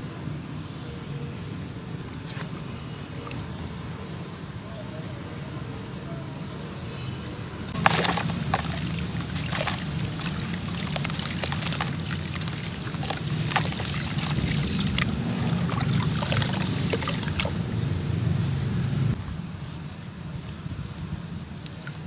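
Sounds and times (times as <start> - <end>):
water sloshing and splashing: 2.0 - 3.6, 7.7 - 17.9
block splashing into water: 7.8 - 17.6.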